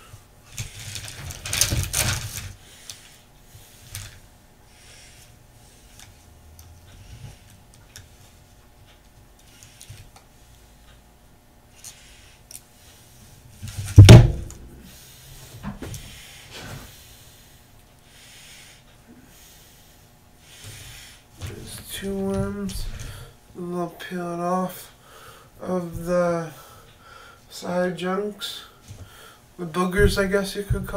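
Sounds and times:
loud thump: 0:13.9 - 0:14.8.

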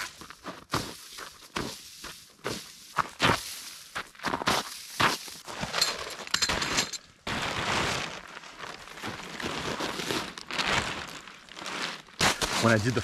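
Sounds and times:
tent fabric rustling and flapping: 0:05.0 - 0:13.0.

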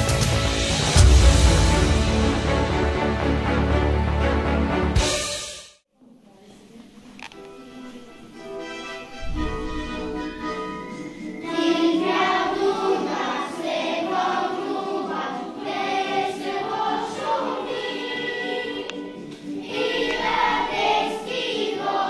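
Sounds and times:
instrumental accompaniment: 0:07.2 - 0:15.0
children singing: 0:09.1 - 0:22.0.

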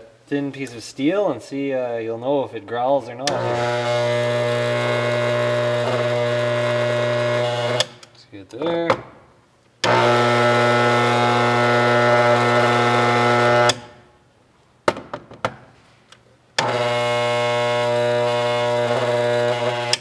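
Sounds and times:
electromagnet humming: 0:03.2 - 0:08.1, 0:09.8 - 0:14.0, 0:16.6 - 0:20.0.

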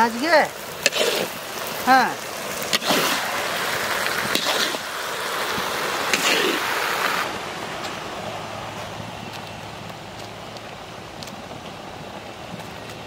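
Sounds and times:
food sizzling in a wok: 0:00.0 - 0:07.3
metal spatula scraping wok: 0:00.8 - 0:01.4, 0:04.3 - 0:04.9.

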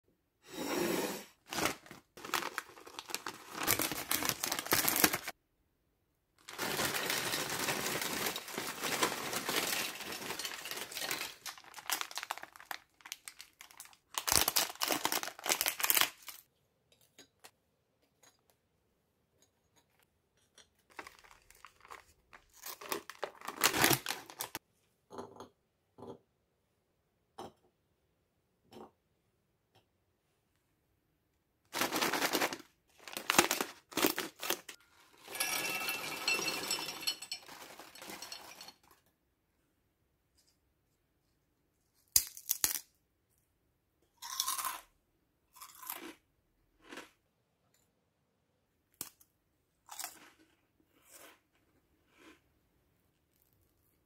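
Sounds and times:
plastic packets crinkling and tearing: 0:01.5 - 0:05.4, 0:06.4 - 0:16.4, 0:20.9 - 0:24.6, 0:31.8 - 0:34.8.

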